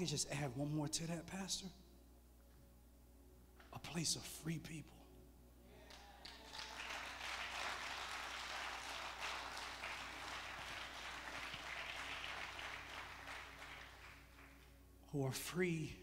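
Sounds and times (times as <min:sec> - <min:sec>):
congregation applauding: 0:05.9 - 0:14.8.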